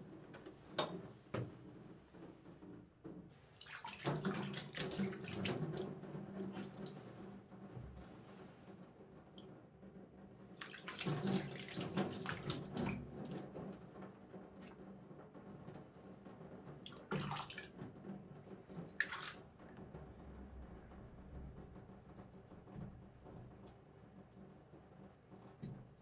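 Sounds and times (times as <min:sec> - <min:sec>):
water splashing and trickling: 0:03.5 - 0:07.3, 0:10.5 - 0:13.8, 0:16.8 - 0:17.9, 0:18.7 - 0:19.8.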